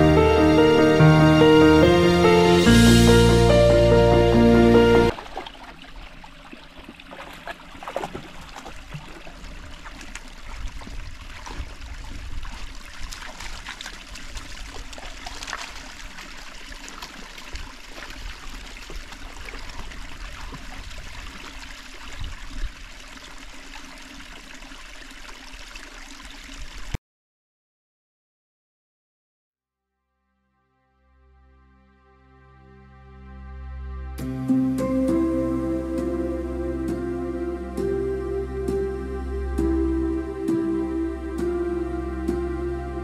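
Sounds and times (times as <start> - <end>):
stream trickling over stones: 5.1 - 27.0.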